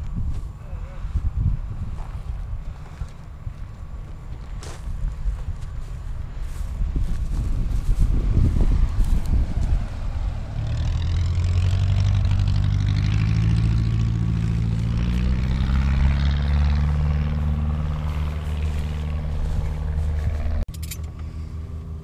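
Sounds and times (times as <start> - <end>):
wind buffeting microphone: 0.0 - 20.6
propeller plane taking off: 5.7 - 22.0.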